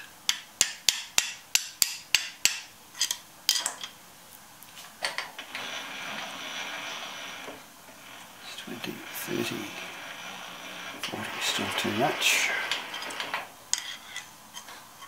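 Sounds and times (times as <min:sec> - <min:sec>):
soft steady hiss: 0:00.0 - 0:15.0.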